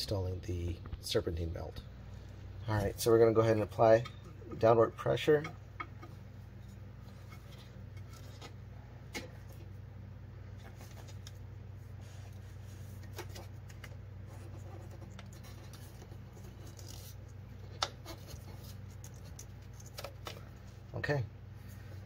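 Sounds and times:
belt rubbing and scraping: 14.2 - 20.2.

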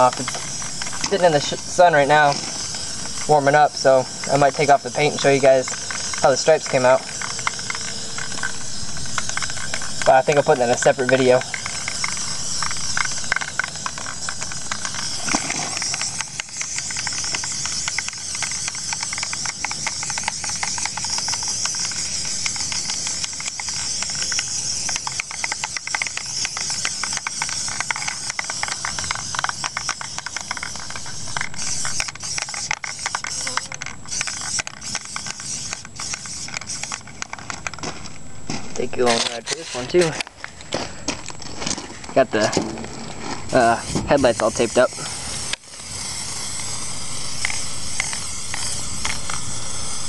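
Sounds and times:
aerosol spray can hissing: 0.0 - 37.2, 43.5 - 50.0
small crackles: 0.0 - 50.0.

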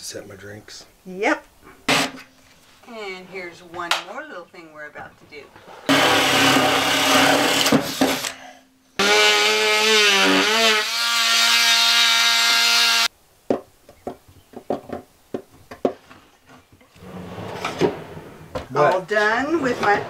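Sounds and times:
power drill running: 5.9 - 8.3.

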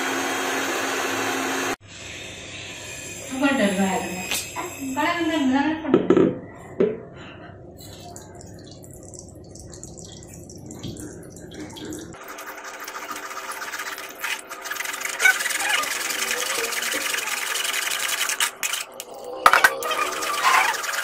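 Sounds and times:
juice trickling into bowl: 7.8 - 19.1.

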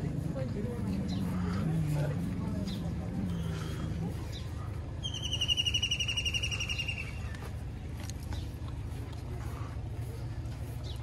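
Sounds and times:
bird trilling: 5.0 - 7.3.

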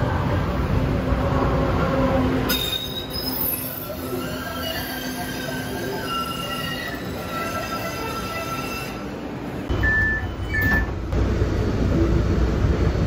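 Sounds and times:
trolley wheels squealing: 2.5 - 9.0
low rumble inside a trolley car: 9.5 - 13.0.

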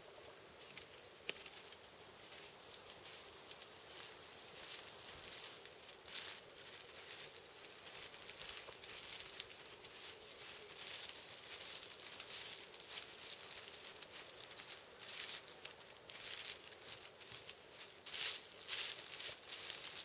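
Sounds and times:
turkey footsteps in dry leaves: 0.0 - 20.0.

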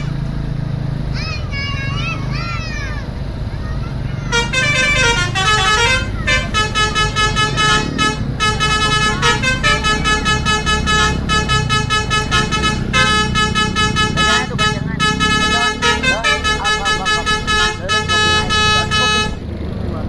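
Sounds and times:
multi-tone musical bus horn: 0.0 - 0.4, 4.1 - 19.5
bus engine running: 0.0 - 20.0.

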